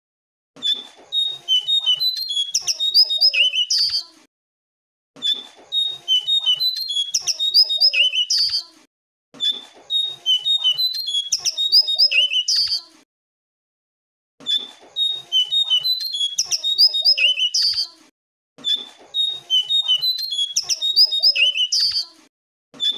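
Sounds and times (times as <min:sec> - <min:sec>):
bird twittering song: 0:00.7 - 0:04.0, 0:05.3 - 0:08.7, 0:09.9 - 0:12.8, 0:14.5 - 0:17.9, 0:19.1 - 0:22.1.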